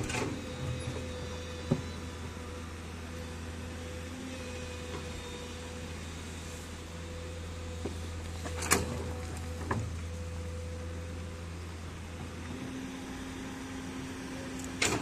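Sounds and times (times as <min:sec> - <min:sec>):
excavator diesel engine droning: 0:00.0 - 0:15.0.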